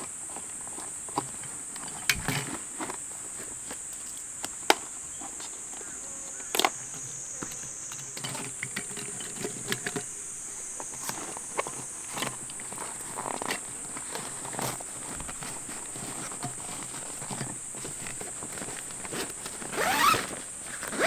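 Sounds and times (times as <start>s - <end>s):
high-pitched insect drone: 4.9s - 13.9s.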